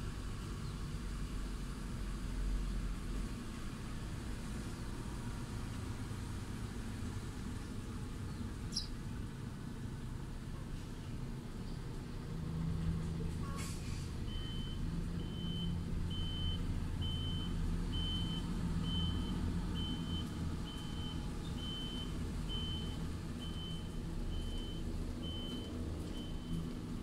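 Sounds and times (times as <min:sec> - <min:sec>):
truck engine running: 0:00.0 - 0:27.0
truck reversing alarm beeping: 0:14.2 - 0:27.0.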